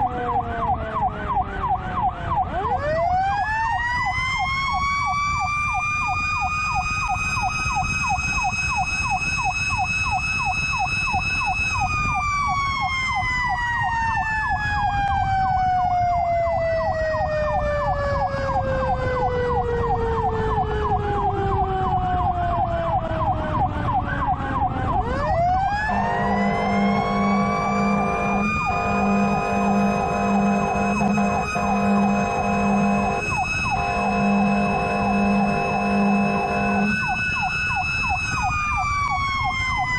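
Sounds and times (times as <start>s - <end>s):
electronic yelp siren: 0.0s - 39.9s
engine and road rumble: 0.0s - 39.9s
mechanical siren wailing: 0.0s - 39.9s
air horn blasts: 25.8s - 37.3s.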